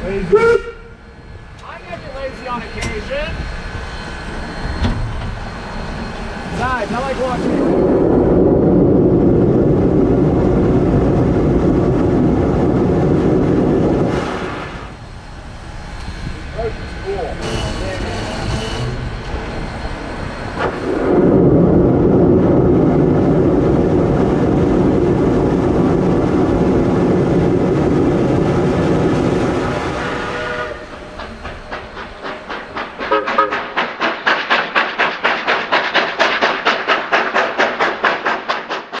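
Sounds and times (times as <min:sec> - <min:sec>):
steam locomotive rushing: 0:00.0 - 0:39.0
steam locomotive chuffing: 0:13.2 - 0:21.0, 0:24.7 - 0:39.0.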